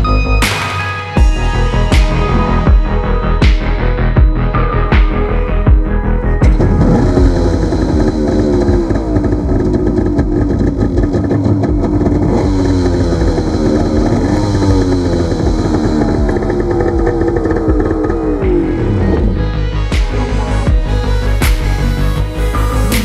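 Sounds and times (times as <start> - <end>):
jet ski engine revving: 6.4 - 22.9.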